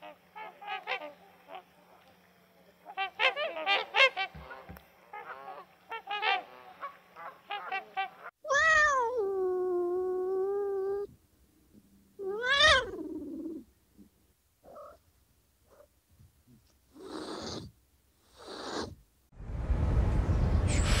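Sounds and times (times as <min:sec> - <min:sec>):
cat meowing: 0:08.4 - 0:11.1, 0:12.2 - 0:13.6.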